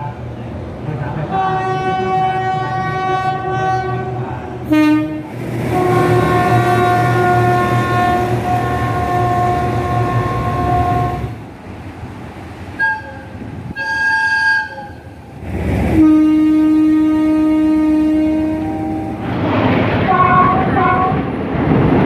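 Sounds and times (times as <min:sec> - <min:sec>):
locomotive air horns: 0:01.3 - 0:11.4, 0:12.8 - 0:15.2, 0:16.0 - 0:19.1, 0:20.1 - 0:21.2.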